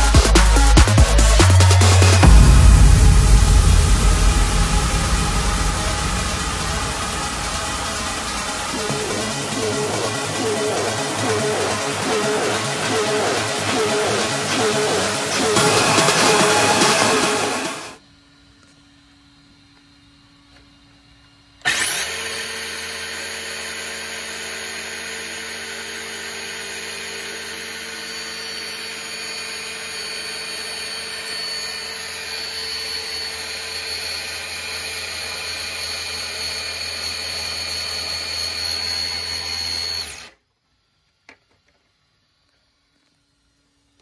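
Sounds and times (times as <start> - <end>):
rc car motor high whine: 4.5 - 44.0.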